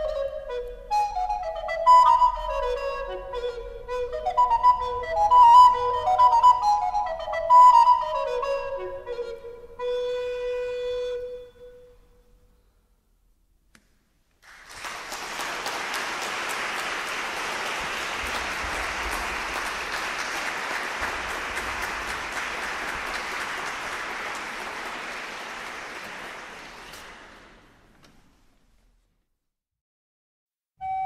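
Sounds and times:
audience applauding: 14.4s - 27.9s.

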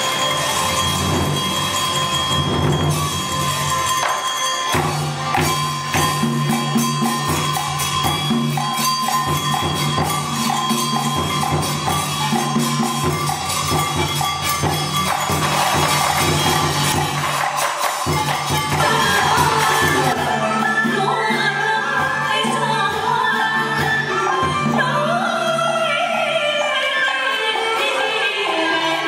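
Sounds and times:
drums and percussion: 0.0s - 29.0s
held melodic notes: 18.6s - 23.3s.

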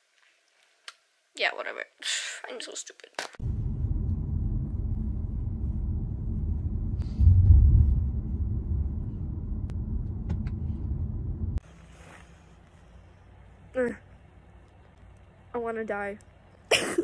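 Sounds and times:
car rumble from inside cabin: 3.4s - 11.6s.

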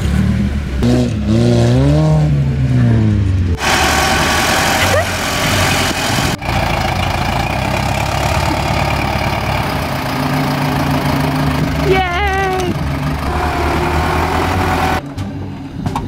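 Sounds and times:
tractor engine running: 3.5s - 16.0s.

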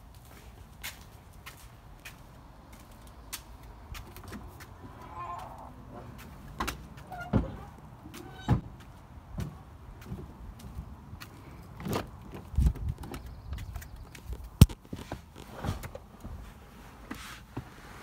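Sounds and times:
footsteps on concrete: 0.0s - 7.1s, 8.1s - 11.5s
wooden gate unlatching and opening: 4.2s - 8.7s.

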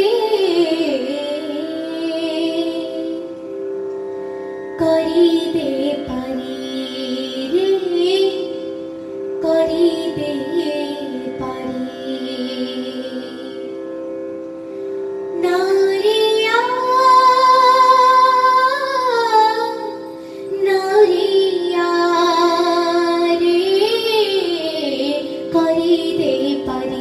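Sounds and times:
girl singing into a microphone: 0.0s - 3.4s, 4.8s - 8.7s, 9.4s - 13.7s, 15.3s - 27.0s.

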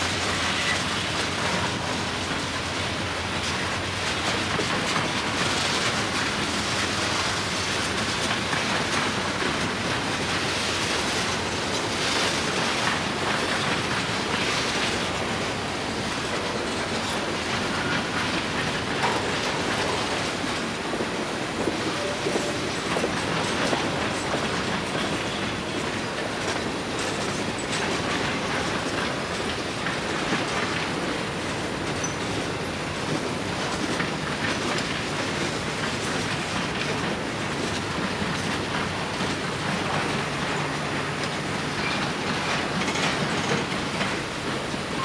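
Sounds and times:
freight train rumbling past: 0.0s - 45.0s
steel wheels clattering over rail joints: 0.0s - 45.0s.

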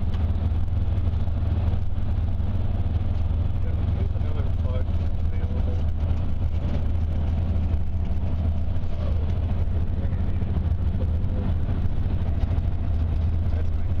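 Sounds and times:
car road and engine drone: 0.0s - 14.0s.

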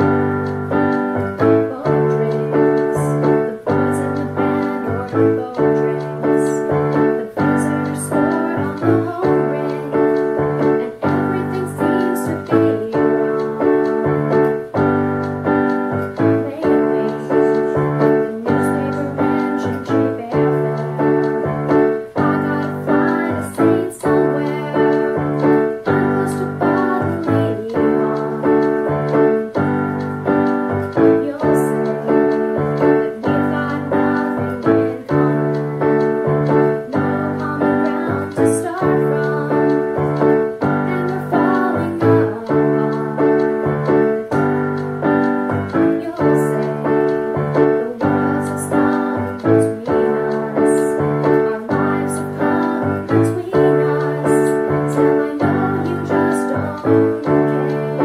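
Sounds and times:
electronic keyboard piano chords: 0.0s - 58.0s.

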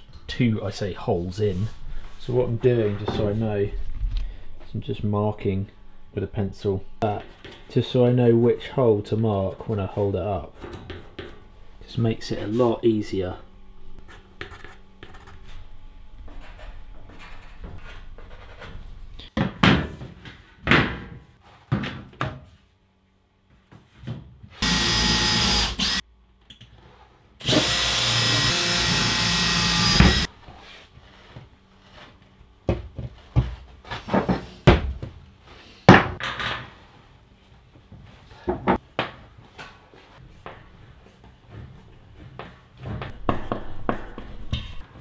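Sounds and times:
power drill whining: 24.6s - 26.0s, 27.4s - 30.3s.

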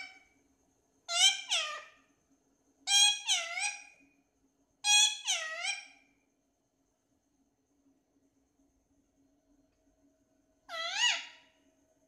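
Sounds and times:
parakeet calling: 0.0s - 0.3s, 1.1s - 2.0s, 2.9s - 4.0s, 4.8s - 6.0s, 10.7s - 11.5s.

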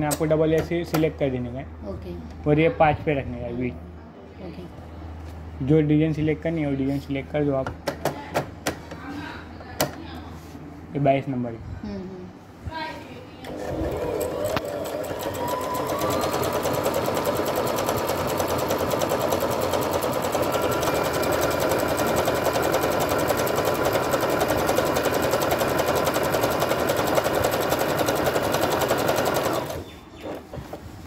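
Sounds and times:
sewing machine stitching: 13.5s - 29.8s.

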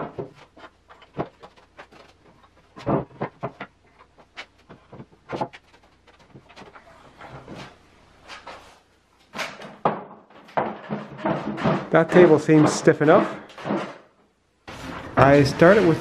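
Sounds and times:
wooden knocks and clunks: 0.0s - 7.7s, 9.3s - 14.2s.

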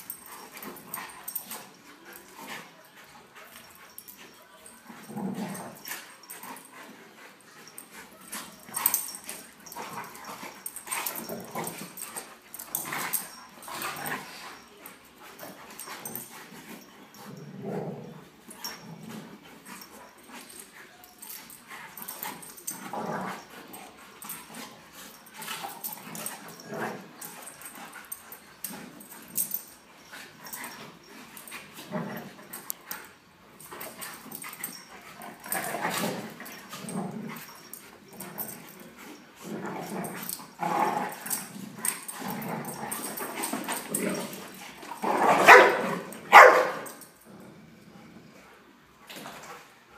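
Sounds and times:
dogs growling yipping and whimpering: 4.8s - 14.8s, 15.4s - 32.7s, 33.8s - 46.3s.

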